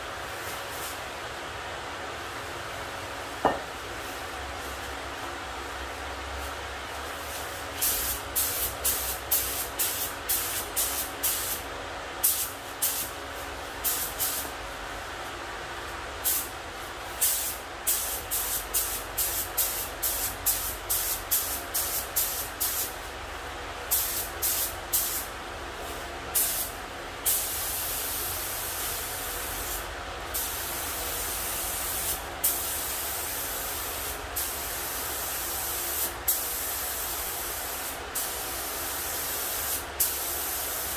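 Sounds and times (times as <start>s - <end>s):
spray gun air hissing: 0.4s - 1.0s, 7.0s - 11.6s, 12.2s - 13.2s, 13.8s - 14.5s, 16.2s - 16.5s, 17.2s - 23.0s, 23.9s - 25.3s, 25.9s - 40.9s.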